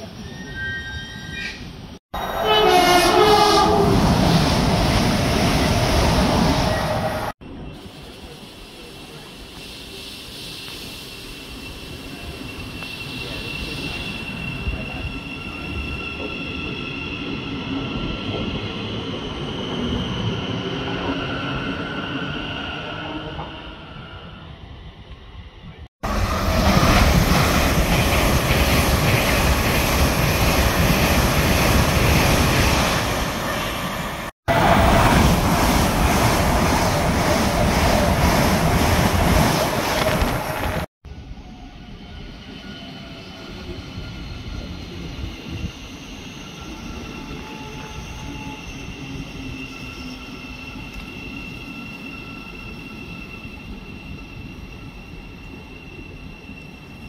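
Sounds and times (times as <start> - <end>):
high-speed train passing: 1.4 - 57.0
electric train whine: 39.7 - 57.0.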